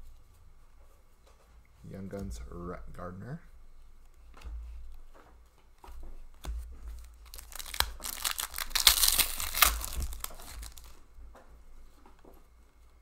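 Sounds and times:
foil wrapper crinkling: 7.0s - 11.1s.

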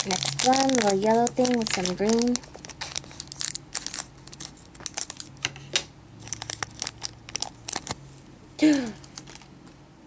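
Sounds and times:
scissors cutting plastic bag: 0.0s - 5.3s, 6.2s - 8.0s
plastic bag crinkling: 0.0s - 5.5s, 6.2s - 8.2s, 9.0s - 9.5s.

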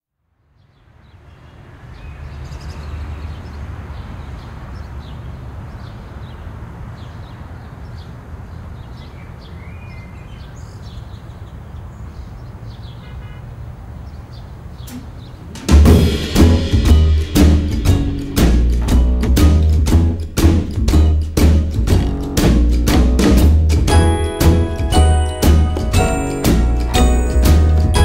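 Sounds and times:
low noisy rumble: 14.9s - 24.0s.

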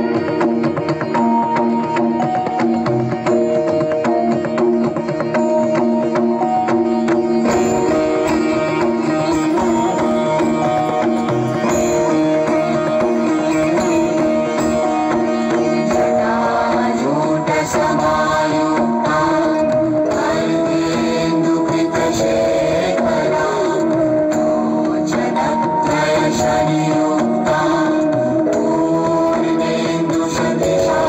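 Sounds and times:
indian-style instrumental music: 0.0s - 31.0s.

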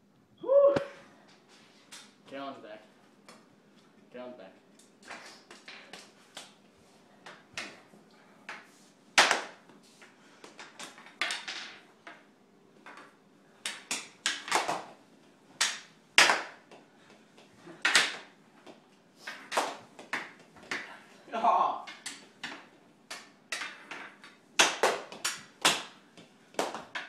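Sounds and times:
hockey sticks clacking: 8.4s - 15.0s, 15.6s - 21.0s, 21.8s - 27.0s.

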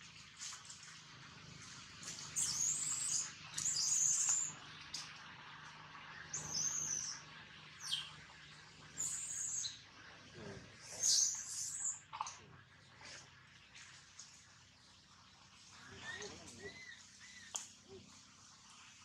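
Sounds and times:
birds warbling song: 2.0s - 9.9s, 10.8s - 12.2s, 15.7s - 17.6s
bird chirps: 2.4s - 4.6s, 6.2s - 7.2s, 7.8s - 8.2s, 9.0s - 9.8s, 11.0s - 12.0s.

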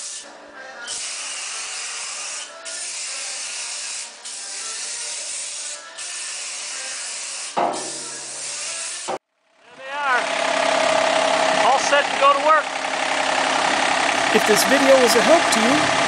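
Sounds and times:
aerosol can spraying: 1.0s - 9.1s.

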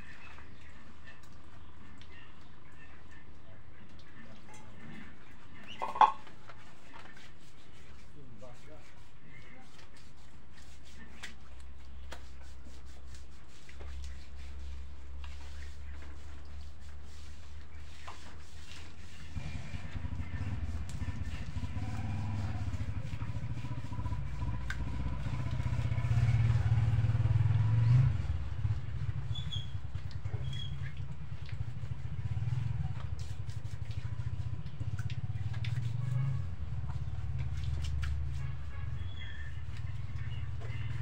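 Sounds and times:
engine rumble: 19.1s - 41.0s.

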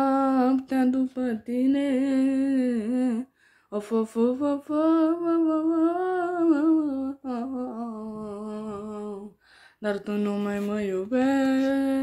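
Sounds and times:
boy singing wordlessly: 3.8s - 12.0s.

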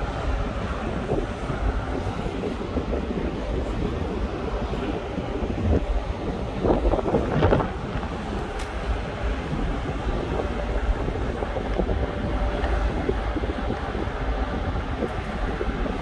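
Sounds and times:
low machinery rumble: 0.0s - 16.0s
wind buffeting microphone: 0.0s - 16.0s.

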